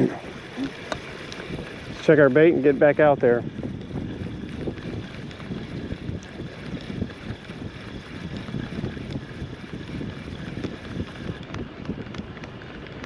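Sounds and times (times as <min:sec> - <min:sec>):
wind buffeting microphone: 0:00.0 - 0:13.0
fishing reel ticking: 0:00.1 - 0:11.7.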